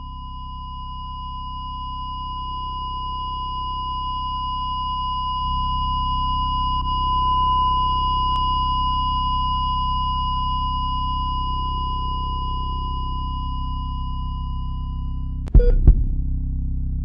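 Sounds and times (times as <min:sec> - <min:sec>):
low synthesized drone: 0:14.8 - 0:17.0.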